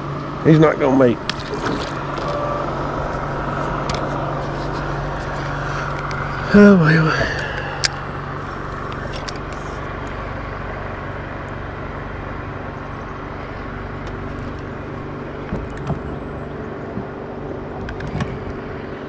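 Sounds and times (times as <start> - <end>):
boat motor humming: 0.0 - 19.0.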